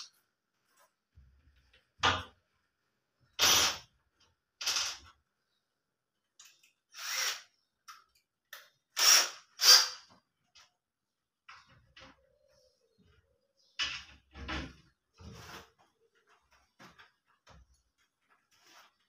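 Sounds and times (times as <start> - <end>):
cordless drill driving screws: 6.9 - 7.5, 9.0 - 10.0.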